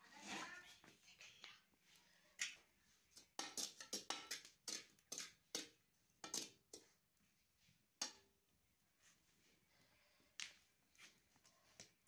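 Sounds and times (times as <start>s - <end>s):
metal ladle stirring sand in pot: 3.1s - 7.0s.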